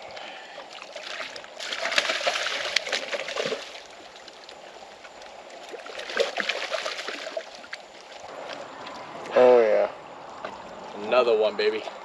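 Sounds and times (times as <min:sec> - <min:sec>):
fish splashing in shallow water: 0:00.0 - 0:09.3.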